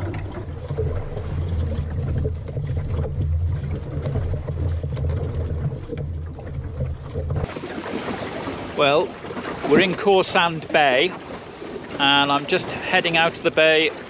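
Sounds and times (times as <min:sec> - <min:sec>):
sea water washing: 0:00.0 - 0:14.0.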